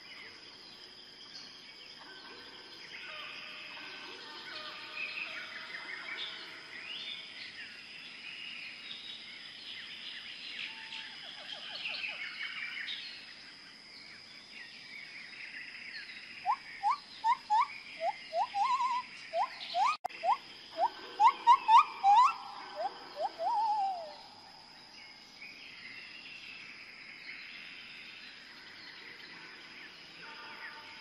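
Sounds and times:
birds chirping and twittering: 0.0 - 31.0
short rising whistled calls: 16.4 - 24.2.

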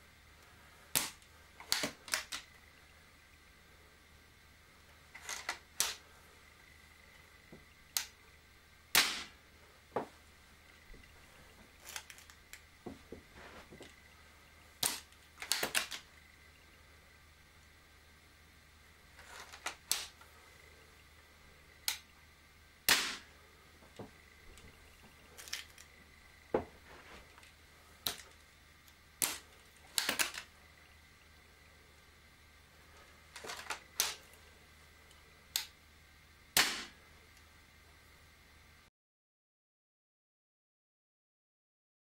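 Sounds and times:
air rifle clicks and clacks: 1.0 - 2.5, 14.8 - 16.1, 29.2 - 30.5.

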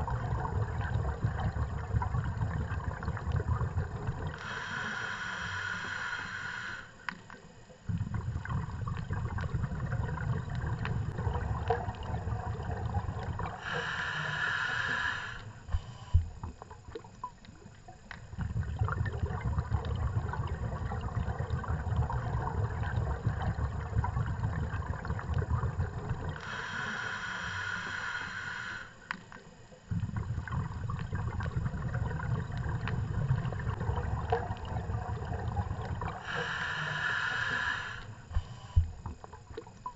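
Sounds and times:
bubbling exhale underwater: 0.0 - 6.8, 7.9 - 28.9, 29.9 - 39.9
hissing regulator inhale: 4.2 - 7.2, 13.0 - 16.3, 26.3 - 29.3, 36.0 - 39.0
faint clicks: 7.0 - 8.0, 29.0 - 29.8.

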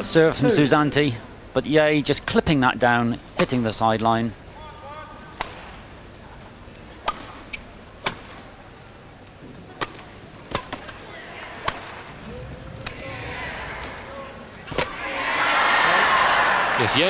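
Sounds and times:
rackets hitting shuttlecock: 5.3 - 5.9, 7.0 - 8.6, 9.7 - 15.0.

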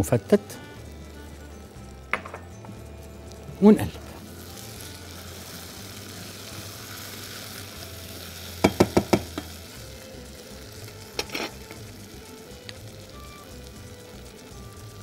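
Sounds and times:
rice sizzling in a pot: 0.0 - 15.0
utensils clicking against pot: 8.6 - 9.8, 10.8 - 11.9.

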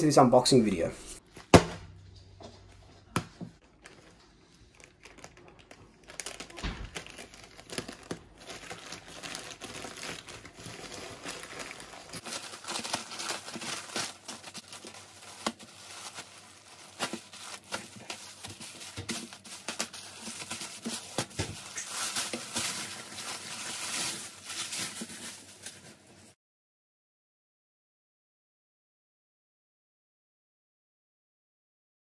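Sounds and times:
plastic bag crinkling: 3.6 - 26.4
plastic satchel tearing: 3.7 - 25.8.

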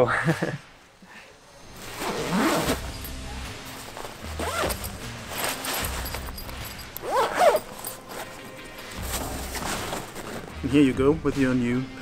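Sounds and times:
zipper being pulled closed: 1.8 - 10.5.

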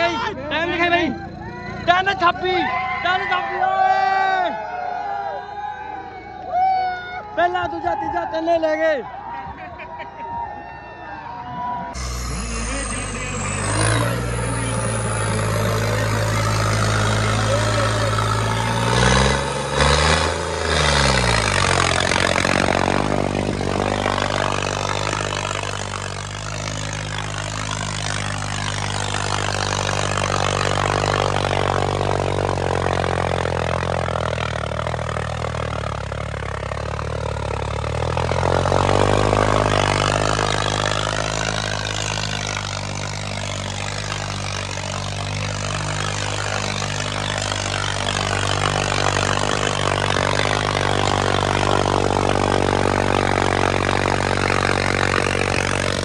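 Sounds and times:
tractor diesel engine running: 0.0 - 5.2, 11.5 - 56.0.

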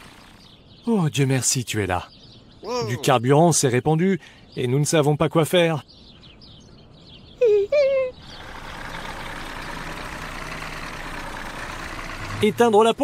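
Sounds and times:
truck engine running: 0.0 - 0.6, 8.2 - 13.0.

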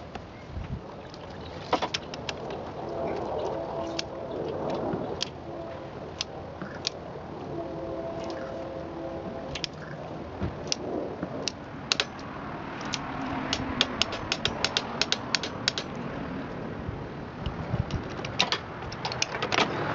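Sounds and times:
ratchet wrench clicking: 12.8 - 16.0.

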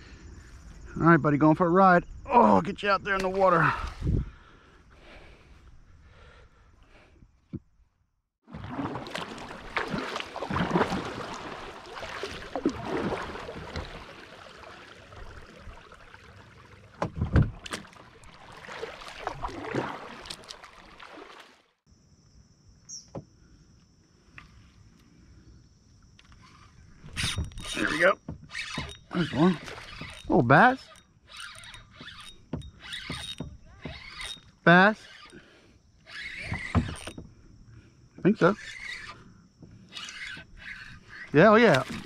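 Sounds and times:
paddle swishing and splashing water: 8.4 - 21.8, 27.7 - 30.3, 40.1 - 42.0.

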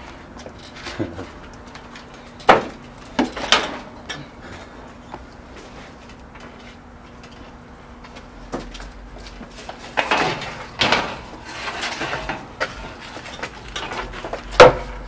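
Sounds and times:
metal gate knocks and clanks: 2.4 - 4.2, 9.9 - 15.0.

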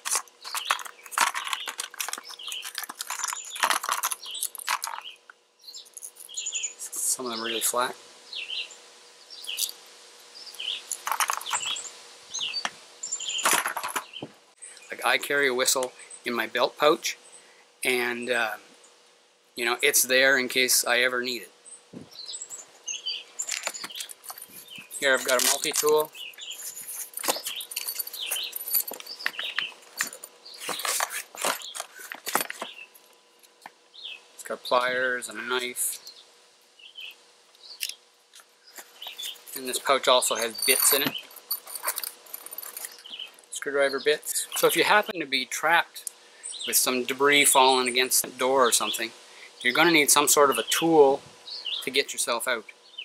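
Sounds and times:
items rattling in plastic tote: 0.0 - 5.2, 10.9 - 11.8, 13.4 - 14.2, 23.4 - 32.8
pouch rustling: 0.0 - 5.2, 23.4 - 32.8, 40.4 - 43.4
small birds chirping: 0.0 - 19.0, 19.6 - 53.0
light metallic clinks: 23.5 - 30.3, 40.3 - 43.4.

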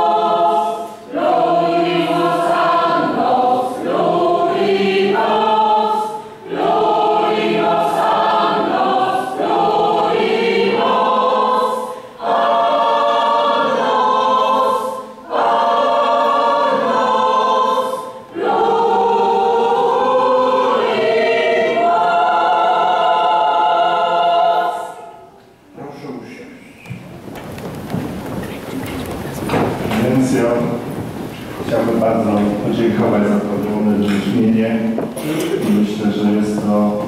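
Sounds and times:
choir singing a hymn: 0.0 - 26.2, 29.5 - 37.0.

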